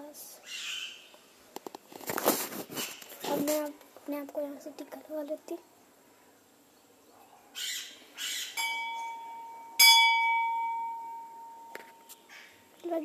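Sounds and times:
short rustling: 0:01.7 - 0:03.8
temple bell struck: 0:08.6 - 0:12.0.

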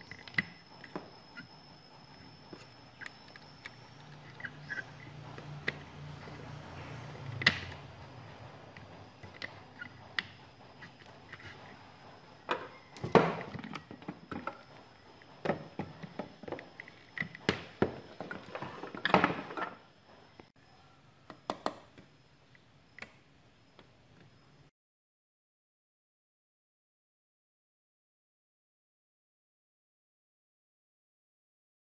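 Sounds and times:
tools and parts knocking on workbench: 0:12.5 - 0:14.7.

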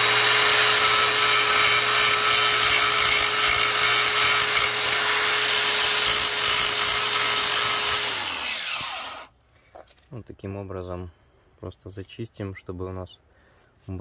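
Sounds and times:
angle grinder grinding metal: 0:00.0 - 0:09.3.

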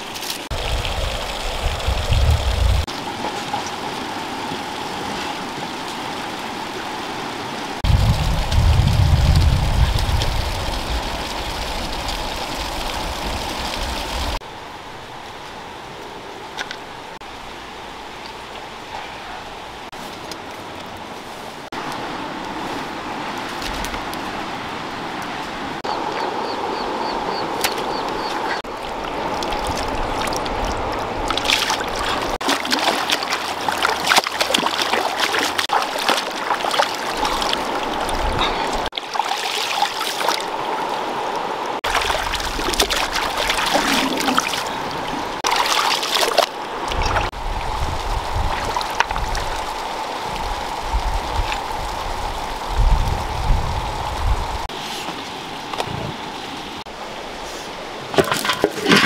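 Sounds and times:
river water running over stones: 0:00.0 - 0:59.0
sloshing and splashing: 0:27.5 - 0:52.3.

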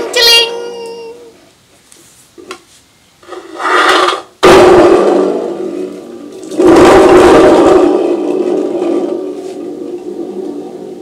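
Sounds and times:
thunder tube rumbling: 0:03.7 - 0:11.0.

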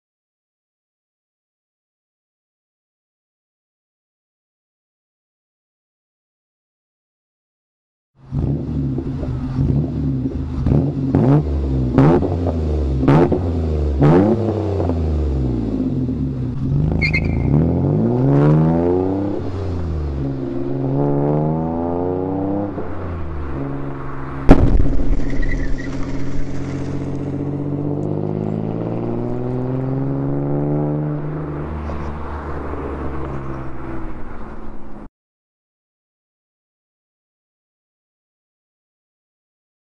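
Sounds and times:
car engine revving: 0:08.2 - 0:34.9
car accelerating through gears: 0:08.3 - 0:24.5, 0:25.3 - 0:34.2
loud exhaust bang: 0:24.5 - 0:27.0.

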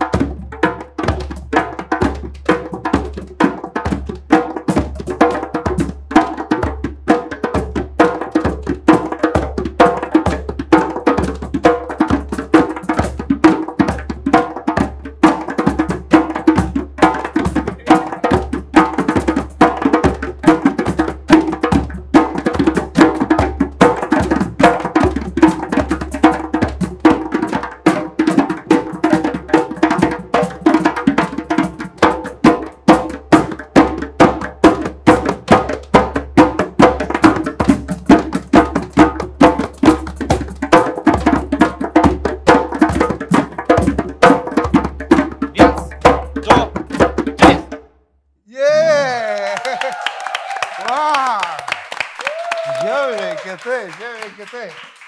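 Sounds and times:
drums in quick rhythm: 0:00.0 - 0:47.9.

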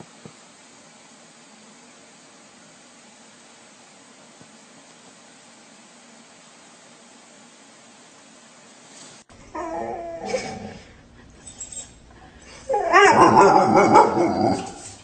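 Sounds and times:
dog whining and crying: 0:09.4 - 0:15.0.

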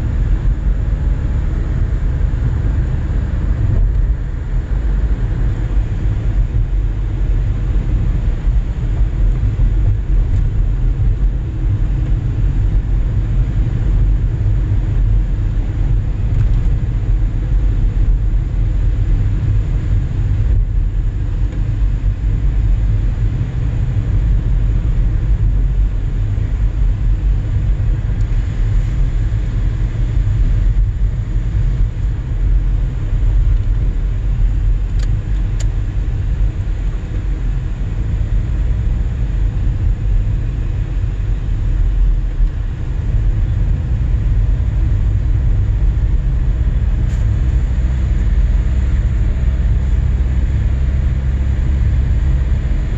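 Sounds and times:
car cabin road and engine rumble: 0:00.0 - 0:52.9.

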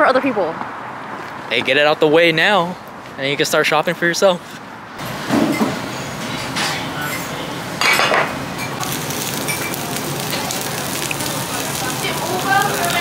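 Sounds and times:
dishes and cutlery clattering: 0:05.3 - 0:05.8, 0:06.4 - 0:08.8
beef sizzling on a grill: 0:08.7 - 0:13.0.

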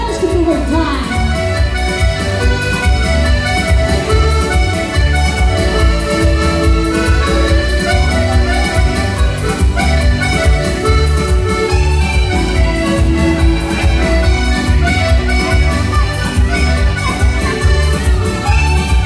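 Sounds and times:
accordion melody over dance beat: 0:00.0 - 0:19.0.

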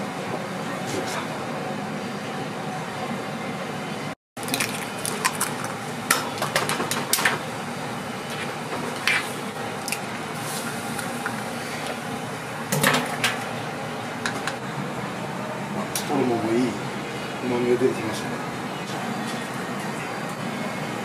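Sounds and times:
steady kitchen hiss: 0:04.4 - 0:21.0.

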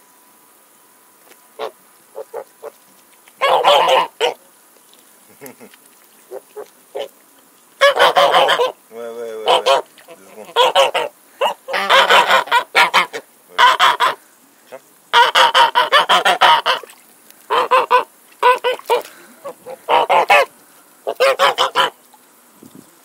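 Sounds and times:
geese honking: 0:03.4 - 0:04.4, 0:07.8 - 0:08.8, 0:09.4 - 0:22.0.

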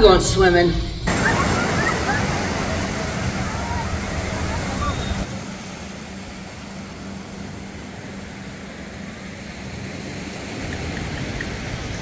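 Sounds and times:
surf breaking over rocks: 0:01.1 - 0:08.4.

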